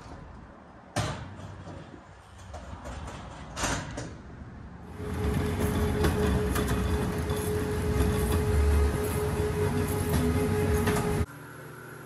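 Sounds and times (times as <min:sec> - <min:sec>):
pallet jack wheels rumbling: 0:04.9 - 0:11.3.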